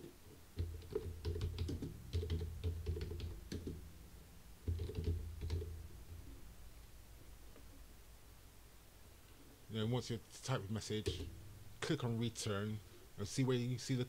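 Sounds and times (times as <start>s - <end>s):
typing on computer keyboard: 0.6s - 3.8s, 4.6s - 5.7s.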